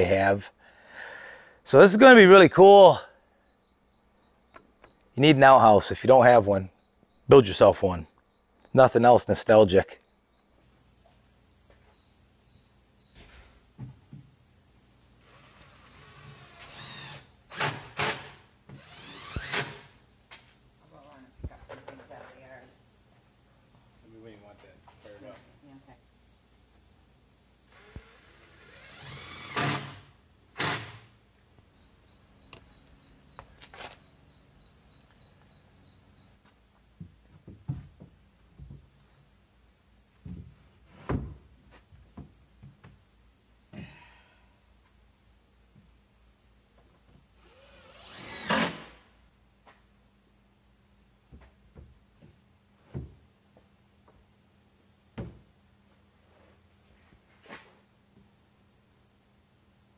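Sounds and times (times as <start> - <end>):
crickets chirping: 0.0 - 59.9
knocks and thuds on wood: 13.2 - 14.4, 37.0 - 39.0, 40.2 - 43.1, 51.3 - 54.2, 55.1 - 55.5.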